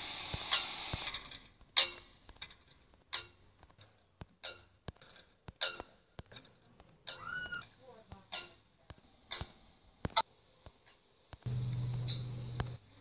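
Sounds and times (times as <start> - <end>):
hiss: 0.0 - 1.4.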